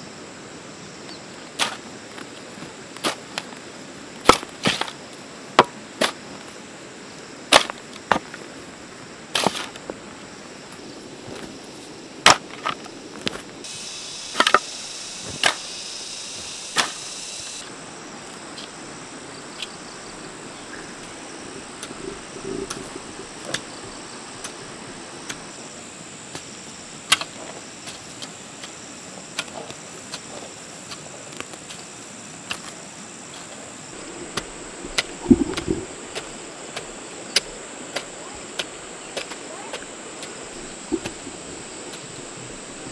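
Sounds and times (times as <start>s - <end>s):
insects trilling: 0.0s - 42.9s
hoe chopping into soil: 7.5s - 8.2s, 14.3s - 15.7s, 16.7s - 17.1s.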